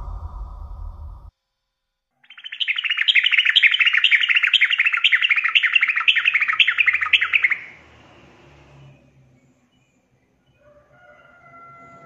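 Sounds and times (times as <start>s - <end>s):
bird chattering call: 2.3s - 7.8s.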